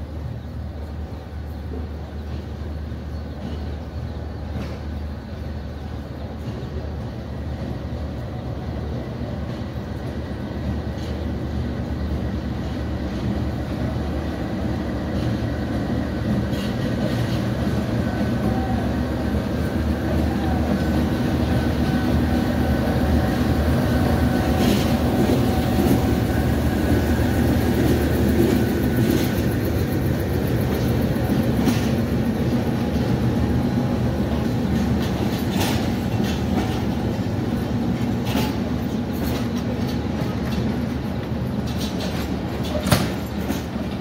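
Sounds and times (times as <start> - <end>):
diesel locomotive engine hum: 0.0 - 44.0
train coaches rolling: 0.0 - 44.0
wheel clicks over rail joints: 38.0 - 44.0.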